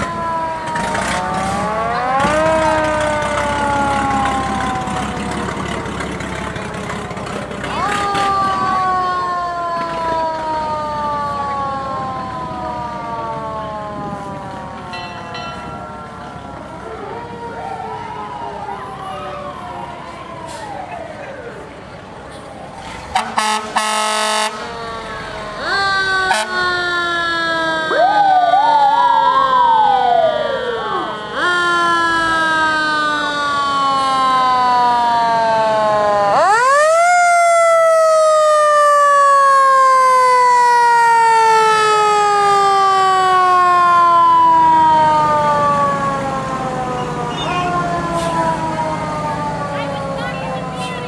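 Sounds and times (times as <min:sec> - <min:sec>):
fire truck siren winding down: 0:00.0 - 0:51.0
short higher siren tone: 0:47.0 - 0:48.5.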